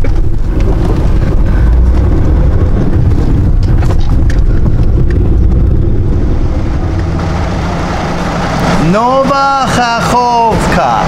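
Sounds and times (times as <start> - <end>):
bodywork rattles and knocks: 0.0 - 7.8
engine and tyres rumbling: 0.0 - 11.0.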